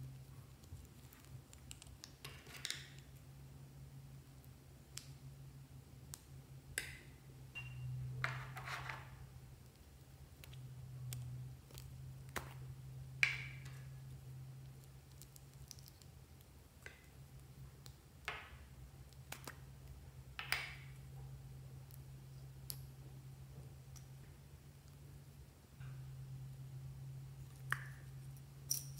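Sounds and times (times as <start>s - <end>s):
steady low hum: 0.0s - 2.2s.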